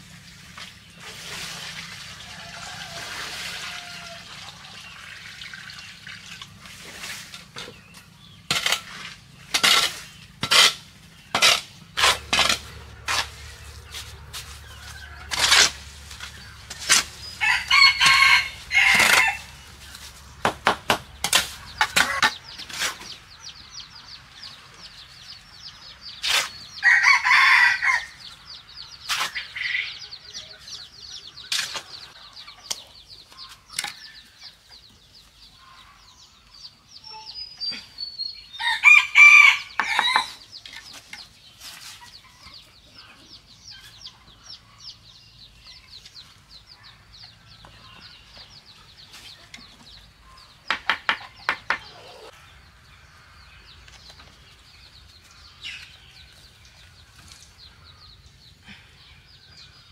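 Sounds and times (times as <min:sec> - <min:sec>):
rooster crowing: 0:02.2 - 0:04.3, 0:17.4 - 0:19.5, 0:26.8 - 0:28.2, 0:38.6 - 0:40.4
shovel scraping wet mortar: 0:08.4 - 0:17.4, 0:18.0 - 0:20.2, 0:21.2 - 0:23.2, 0:26.2 - 0:26.7, 0:29.1 - 0:29.6, 0:31.4 - 0:32.0.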